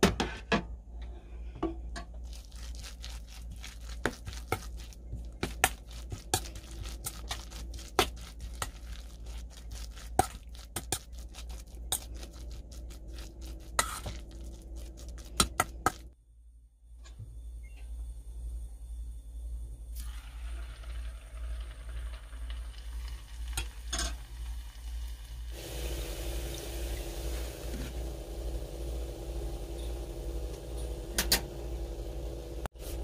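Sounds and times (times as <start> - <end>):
metal spoon scraping metal bowl: 13.6 - 14.3.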